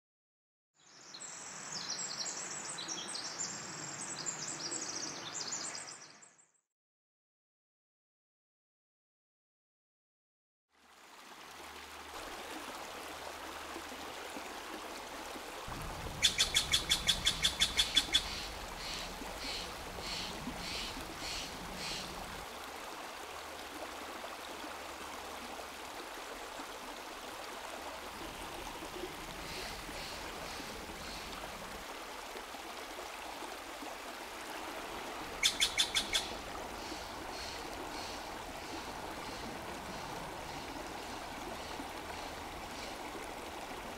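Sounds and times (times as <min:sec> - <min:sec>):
running water: 0:10.7 - 0:43.9
bird calling: 0:16.1 - 0:22.2, 0:35.4 - 0:41.8.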